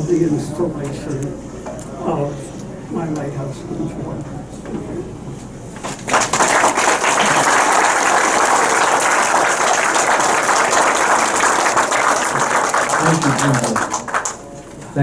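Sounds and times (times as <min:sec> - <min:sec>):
audience applauding: 0:05.9 - 0:14.5.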